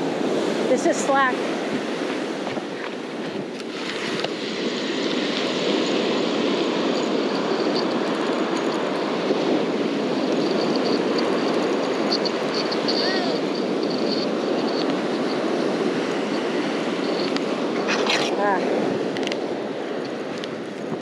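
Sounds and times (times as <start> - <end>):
wind on microphone: 0.0 - 21.0
fishing reel ticking: 4.1 - 15.5.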